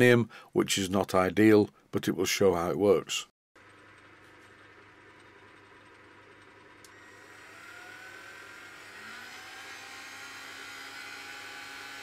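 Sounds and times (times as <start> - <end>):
motor whine and hum: 3.6 - 12.0.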